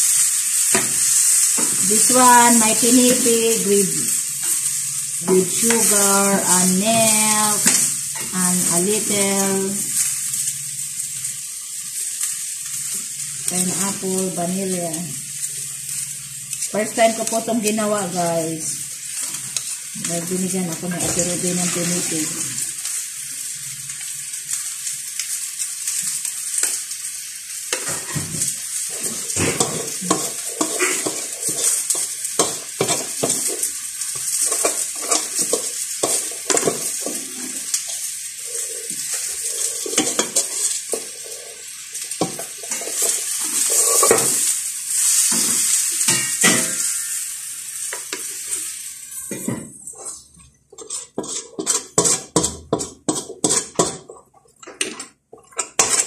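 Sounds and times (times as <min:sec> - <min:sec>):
spoon scraping and clinking pan: 0:38.7 - 0:41.4, 0:42.2 - 0:44.4, 0:49.1 - 0:56.0.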